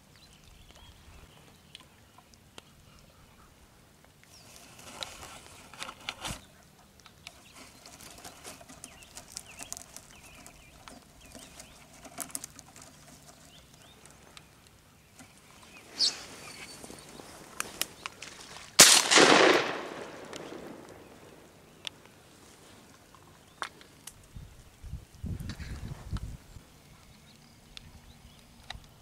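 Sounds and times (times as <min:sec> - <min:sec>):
bird chirps: 0:13.1 - 0:18.2.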